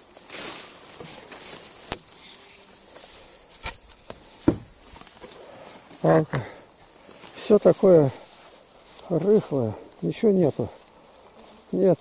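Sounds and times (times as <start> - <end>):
tall grass rustling: 0.0 - 12.0
sharp knocks: 4.4 - 4.7.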